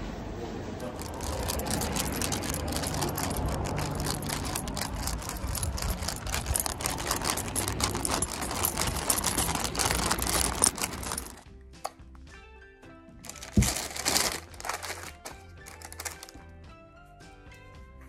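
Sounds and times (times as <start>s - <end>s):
paper bag rustling: 0.8s - 11.4s, 13.2s - 16.4s
metal keys jangling: 0.9s - 11.4s, 13.3s - 16.3s.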